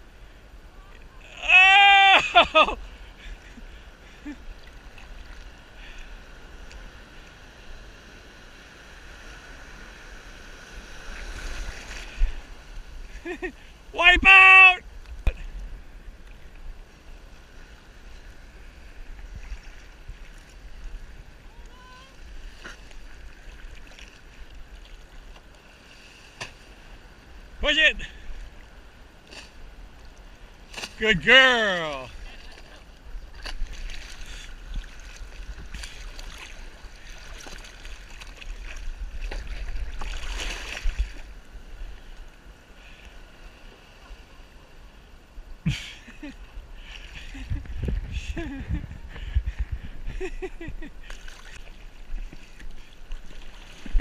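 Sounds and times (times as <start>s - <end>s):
sea water lapping and sloshing: 2.2s - 13.9s, 14.9s - 54.0s
wind rumble on microphone: 33.0s - 36.9s, 37.7s - 42.2s, 46.5s - 54.0s.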